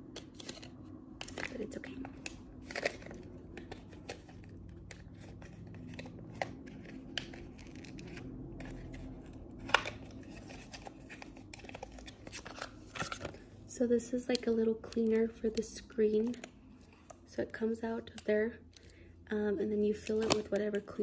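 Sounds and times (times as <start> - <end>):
packaging rustling and crinkling: 0.0 - 13.6.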